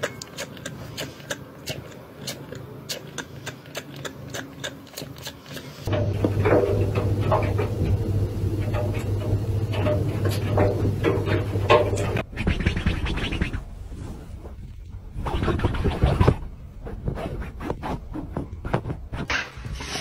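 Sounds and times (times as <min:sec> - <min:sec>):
washing machine drum turning: 0:05.9 - 0:12.3.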